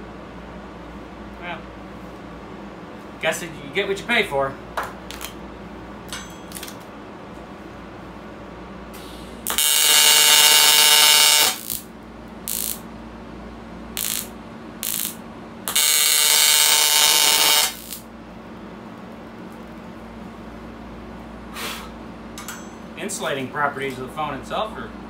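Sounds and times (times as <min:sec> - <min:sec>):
welding arc buzzing: 0:09.4 - 0:12.9, 0:13.9 - 0:18.1.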